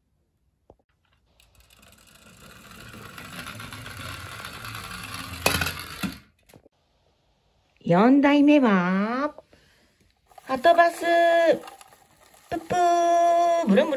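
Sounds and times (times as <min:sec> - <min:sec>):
toy car whirring rattle: 0:00.9 - 0:06.6, 0:10.3 - 0:13.9.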